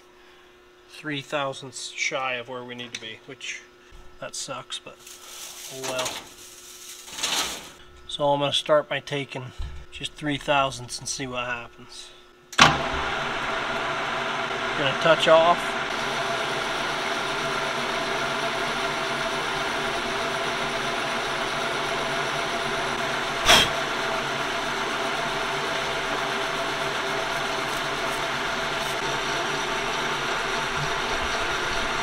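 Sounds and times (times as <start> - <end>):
metal lathe humming: 12.8 - 32.0.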